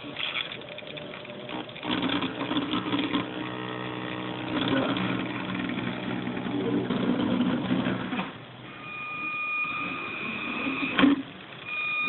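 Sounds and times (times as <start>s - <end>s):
toy car electric motor whine: 1.8s - 7.9s, 8.8s - 12.0s.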